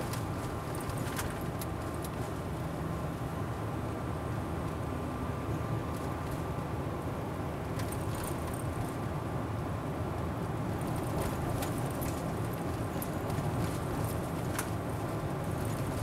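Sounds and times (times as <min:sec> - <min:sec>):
car engine and tyre rumble: 0:00.0 - 0:16.0.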